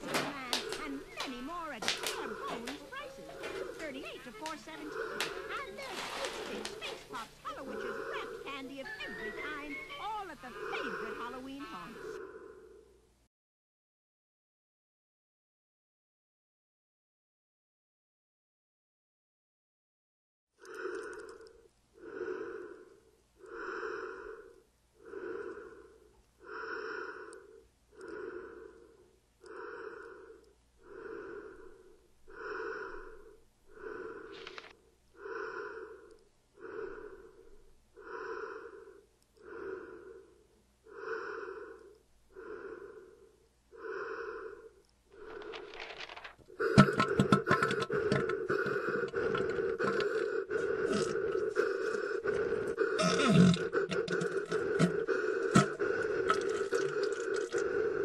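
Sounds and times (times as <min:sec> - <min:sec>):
heavy breathing through a mask: 0:00.0 - 0:13.1, 0:20.6 - 0:58.0
loud rasping noise: 0:46.6 - 0:58.0.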